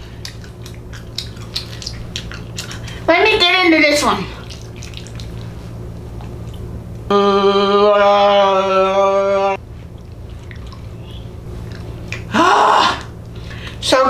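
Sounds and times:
person humming: 0:07.1 - 0:09.6.

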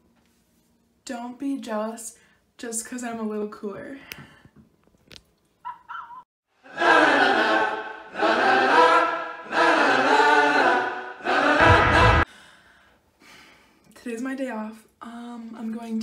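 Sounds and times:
voices singing a cappella: 0:06.6 - 0:12.3
low boom: 0:11.6 - 0:12.3.

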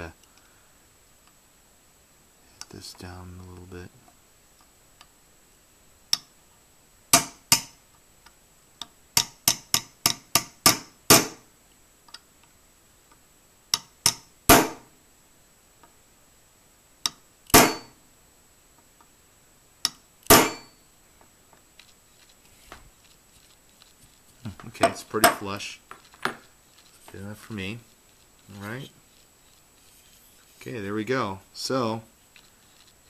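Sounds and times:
hammer tapping metal punch: 0:07.1 - 0:07.8, 0:09.2 - 0:11.4, 0:13.8 - 0:14.8, 0:17.1 - 0:18.0, 0:19.9 - 0:20.8.

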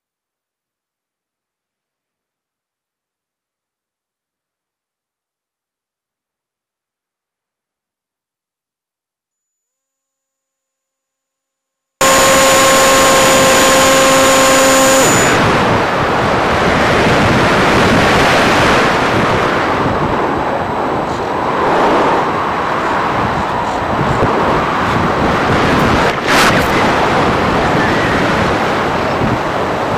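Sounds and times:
steady hum: 0:12.0 - 0:28.8
airflow rushing over microphone: 0:12.0 - 0:29.9.

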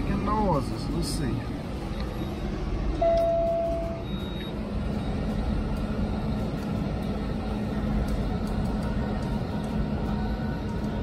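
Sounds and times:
diesel engine idling: 0:00.0 - 0:11.0
electronic beep: 0:03.0 - 0:05.2.

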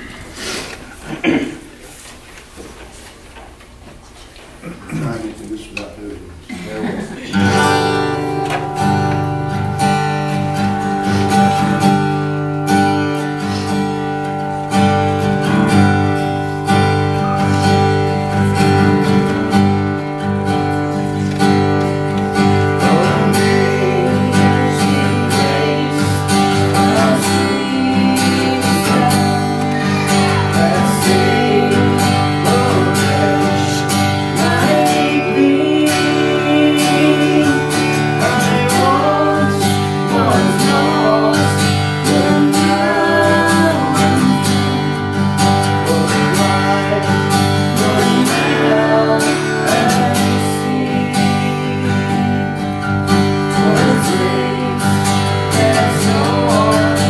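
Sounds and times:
acoustic guitar strumming: 0:07.3 - 0:57.0
person singing: 0:22.2 - 0:57.0.

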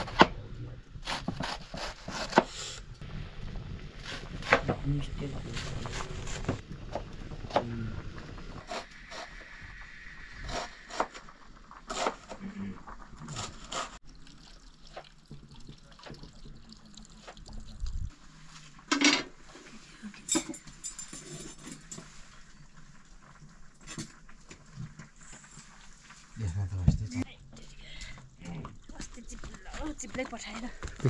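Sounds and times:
wood fire crackling and popping: 0:09.7 - 0:18.2, 0:22.3 - 0:26.4, 0:27.5 - 0:31.0.

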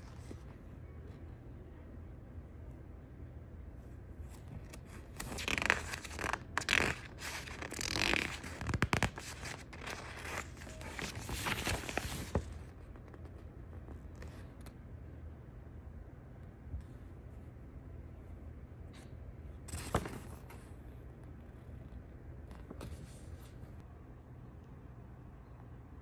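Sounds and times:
paper rustling and crinkling: 0:04.3 - 0:14.7, 0:19.7 - 0:20.8.

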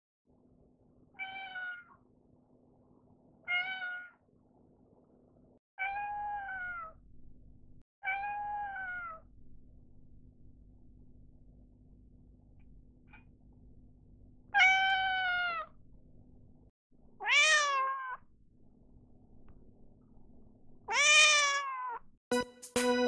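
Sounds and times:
cat meowing: 0:01.2 - 0:02.0, 0:03.4 - 0:04.2, 0:05.8 - 0:07.0, 0:08.0 - 0:09.2, 0:14.6 - 0:15.8, 0:17.2 - 0:18.3, 0:20.9 - 0:22.0.

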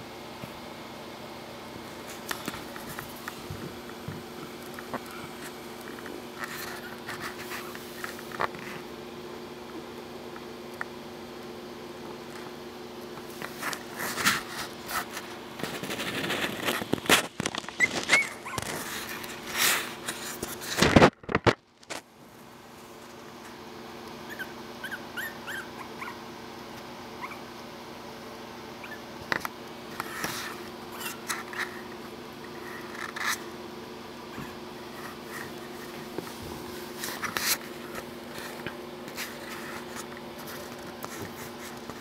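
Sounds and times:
scratching and rustling on bedding: 0:01.8 - 0:08.9, 0:13.2 - 0:21.1, 0:34.3 - 0:42.0
puppies whimpering and squeaking: 0:06.5 - 0:07.7, 0:17.6 - 0:19.4, 0:24.3 - 0:26.2, 0:27.2 - 0:27.5, 0:28.8 - 0:29.2, 0:30.9 - 0:31.6.

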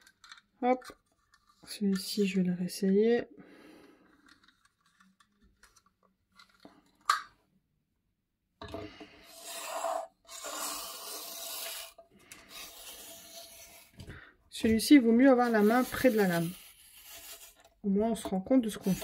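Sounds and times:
blade scraping through paper: 0:09.3 - 0:14.0, 0:14.7 - 0:17.7, 0:18.6 - 0:19.0.

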